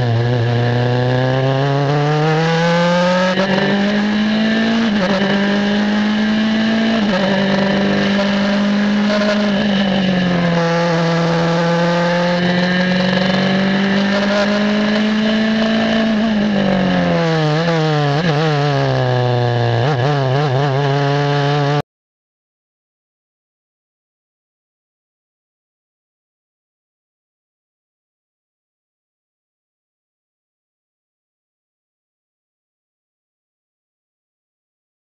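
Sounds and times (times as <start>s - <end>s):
race car engine at high revs: 0.0s - 21.8s.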